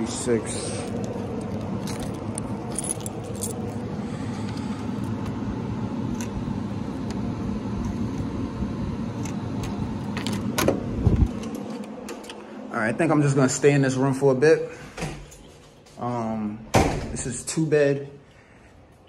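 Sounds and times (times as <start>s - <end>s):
fan drone: 0.0s - 19.0s
keys jangling: 0.7s - 4.6s.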